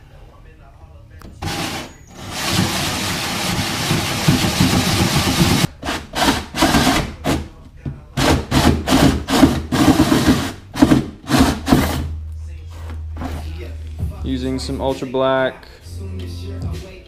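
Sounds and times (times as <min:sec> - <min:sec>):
power tool cutting plastic: 0:01.4 - 0:07.4.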